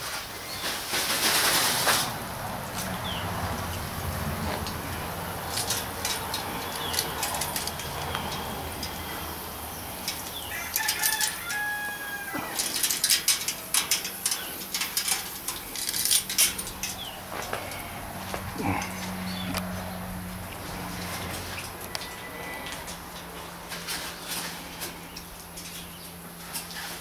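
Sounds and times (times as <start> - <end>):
sharp clicks and rattles: 0.6 - 11.6, 12.4 - 19.9.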